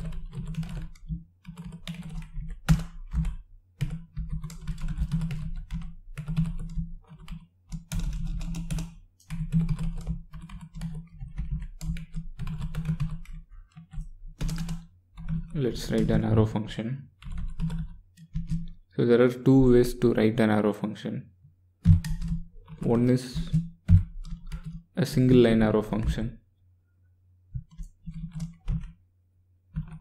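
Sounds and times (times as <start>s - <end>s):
computer keyboard typing: 0.0s - 16.5s, 17.2s - 18.8s, 21.8s - 26.3s, 27.6s - 29.0s, 29.7s - 30.0s.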